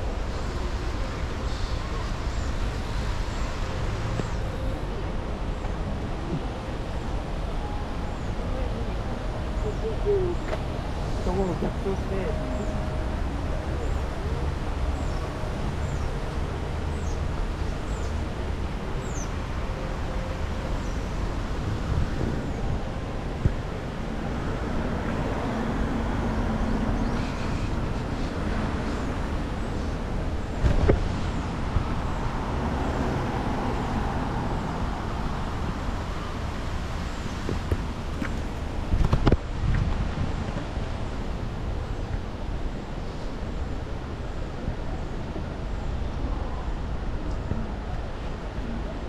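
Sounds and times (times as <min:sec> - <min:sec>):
road traffic: 0:00.0 - 0:49.0.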